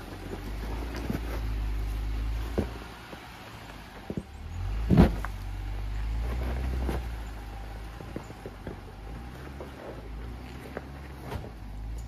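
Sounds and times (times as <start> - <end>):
vehicle engine running off-road: 0.0 - 12.0
heavy clunk of vehicle: 4.0 - 5.4, 10.7 - 12.0
vehicle jolting knock: 4.1 - 5.4.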